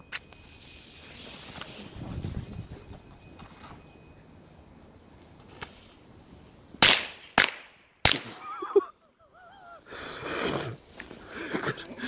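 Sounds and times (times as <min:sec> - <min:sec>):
firecracker bangs: 0:06.8 - 0:08.4.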